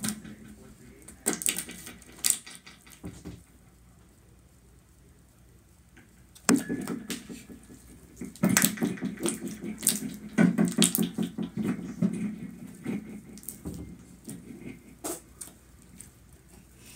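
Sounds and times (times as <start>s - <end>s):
slime squelching: 6.5s - 16.1s.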